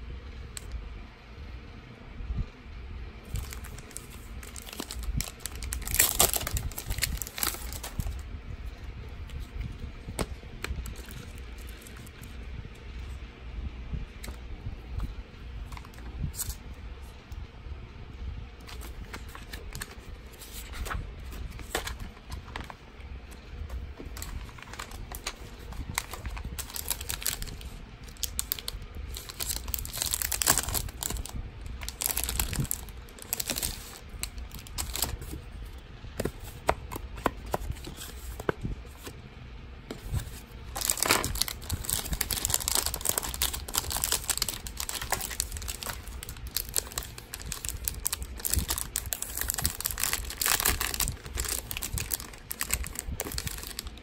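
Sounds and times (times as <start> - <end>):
plastic packets crinkling: 3.3 - 8.2, 18.6 - 22.8, 23.8 - 35.4, 40.1 - 54.0.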